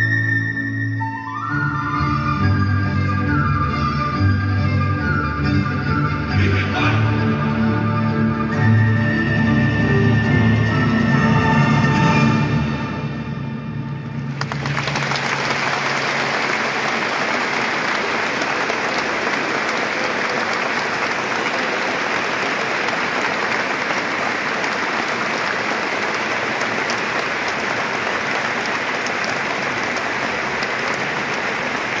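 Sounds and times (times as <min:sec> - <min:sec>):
low orchestral notes: 0:00.0 - 0:14.4
stadium crowd applauding: 0:14.1 - 0:32.0.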